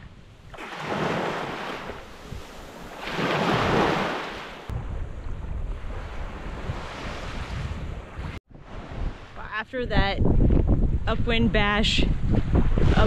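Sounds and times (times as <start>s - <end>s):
small waves breaking on beach: 0.5s - 4.7s, 5.8s - 9.4s
wind buffeting microphone: 1.9s - 13.0s.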